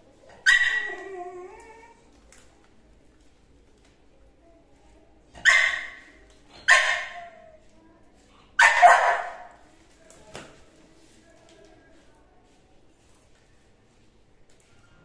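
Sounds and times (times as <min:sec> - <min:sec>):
puppy barking: 0:00.4 - 0:01.0, 0:05.4 - 0:07.4, 0:08.6 - 0:09.6.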